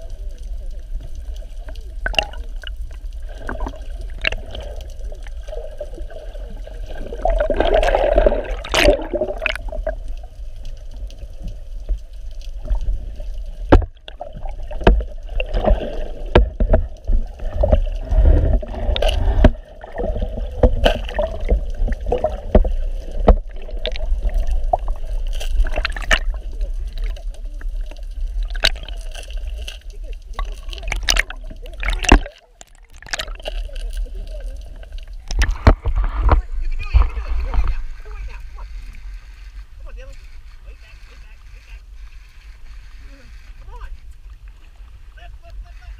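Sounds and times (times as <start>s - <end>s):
water sloshing and gurgling: 0.0s - 45.9s
fish splashing at surface: 7.0s - 10.0s, 30.4s - 33.8s.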